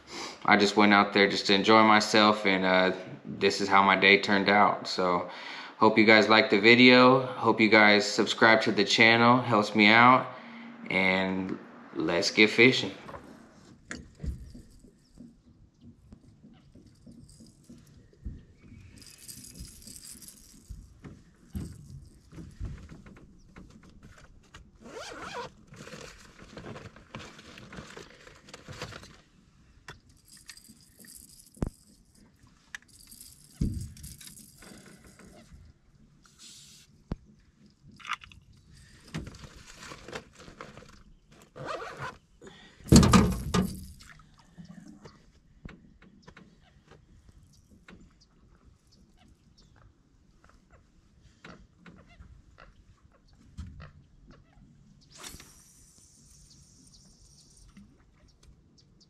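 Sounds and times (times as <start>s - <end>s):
fishing reel clicks and scrapes: 19.0s - 20.8s, 55.1s - 57.9s
fishing line hissing: 55.1s - 57.9s.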